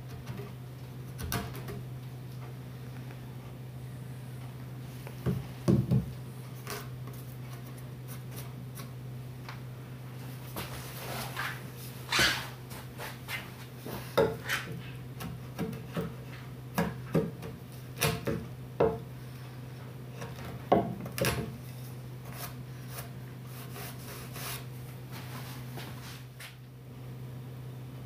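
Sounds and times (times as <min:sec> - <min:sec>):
chisel scraping wood: 0:22.2 - 0:24.7.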